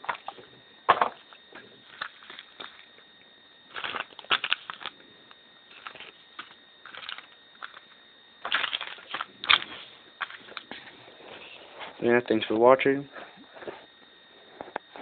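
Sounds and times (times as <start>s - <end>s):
plastic packages crinkling: 0.0s - 3.1s, 3.7s - 5.0s, 5.7s - 11.6s.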